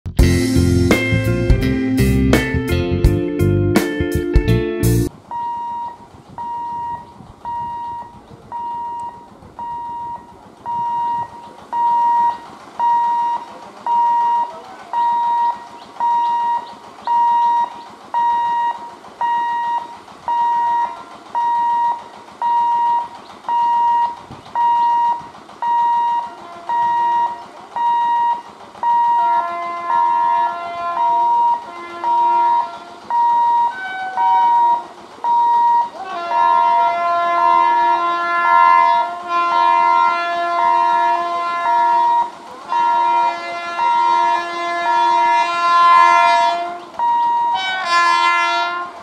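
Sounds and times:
level crossing warning beeps: 0:05.3 - 0:36.0, 0:47.0 - 0:47.7
lower warning tone: 0:05.3 - 0:48.8.

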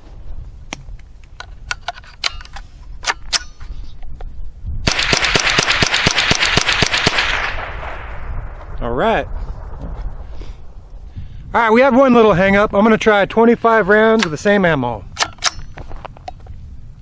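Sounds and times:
rapid rifle fire: 0:04.8 - 0:08.2.

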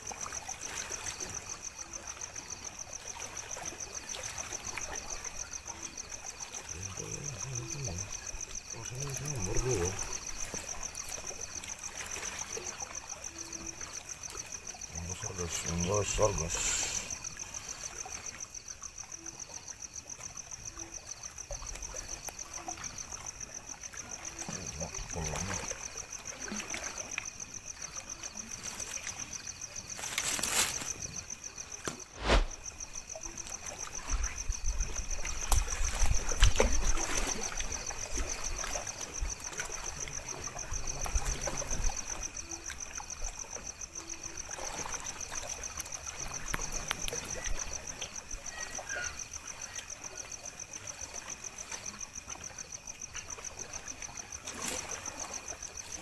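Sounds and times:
insects trilling: 0:00.0 - 0:56.0
water trickling and lapping: 0:00.0 - 0:56.0
sharp ticks: 0:46.5 - 0:47.5.

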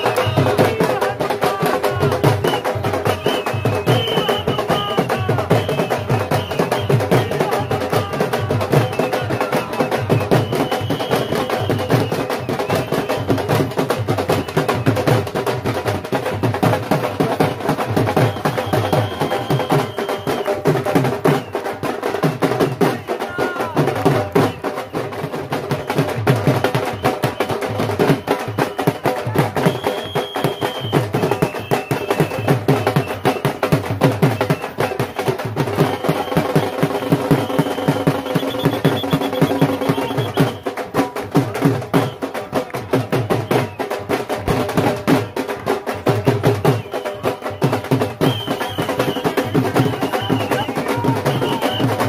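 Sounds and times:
people clapping: 0:00.0 - 0:10.1, 0:17.0 - 0:20.8, 0:34.6 - 0:52.0
barrel drums beaten with sticks: 0:00.0 - 0:52.0.

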